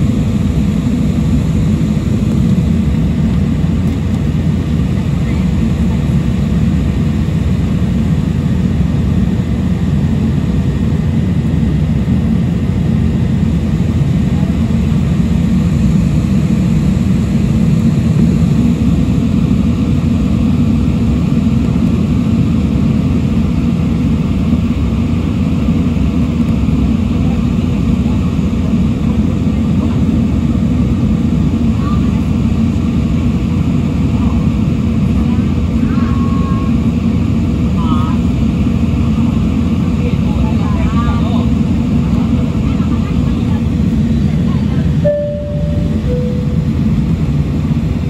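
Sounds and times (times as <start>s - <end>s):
airliner cabin roar: 0.0s - 48.0s
faint steady whine: 42.9s - 48.0s.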